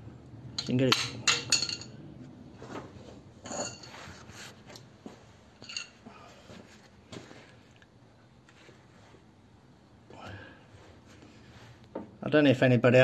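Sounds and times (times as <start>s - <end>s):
metallic tool clinks: 0.6s - 2.0s.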